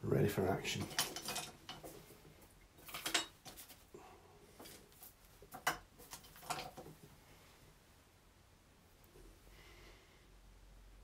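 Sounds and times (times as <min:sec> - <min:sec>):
small hard objects clinking: 0:00.7 - 0:01.9.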